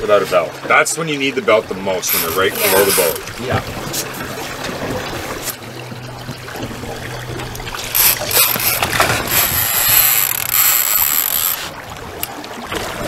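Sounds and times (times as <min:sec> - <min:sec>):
boat motor humming low: 0:01.6 - 0:13.0
fishing reel drag whine: 0:01.9 - 0:03.3, 0:07.2 - 0:12.3.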